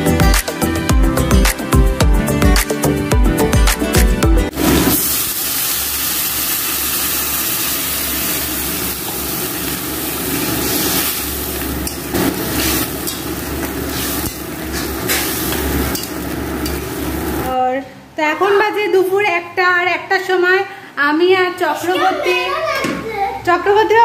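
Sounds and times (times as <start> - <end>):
vegetables sizzling in a wok: 4.5 - 17.6
metal spatula scraping a wok: 10.4 - 16.8.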